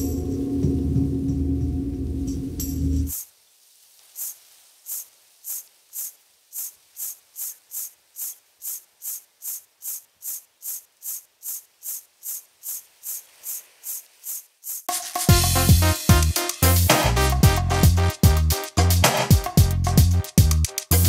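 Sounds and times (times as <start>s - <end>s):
short high hissing strokes: 3.1s - 17.4s.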